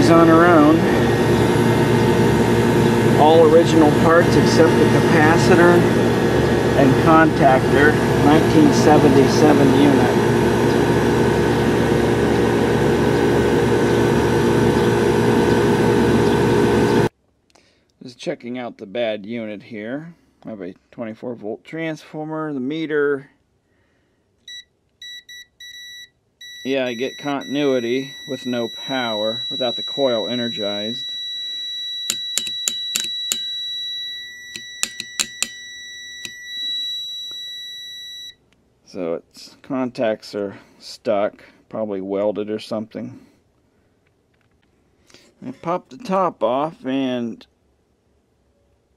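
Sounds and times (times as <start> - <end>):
air conditioner unit humming: 0.0 - 17.2, 23.5 - 48.4
multimeter continuity beep tone: 24.5 - 38.4
sharp clicks: 32.0 - 33.6, 34.5 - 35.6, 36.2 - 36.4.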